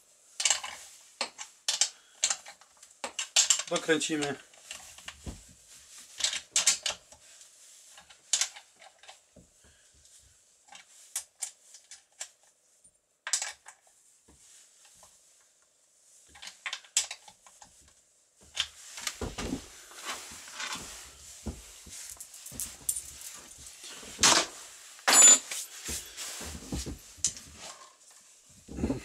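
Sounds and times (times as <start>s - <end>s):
handling noise: 18.5s - 29.0s.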